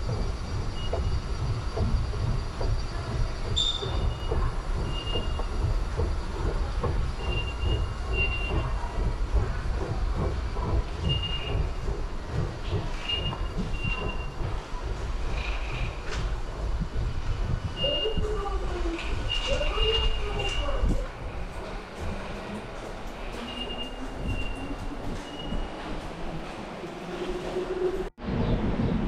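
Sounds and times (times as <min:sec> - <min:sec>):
low rumble: 0:00.0 - 0:22.8
high-pitched squeals: 0:23.2 - 0:26.4.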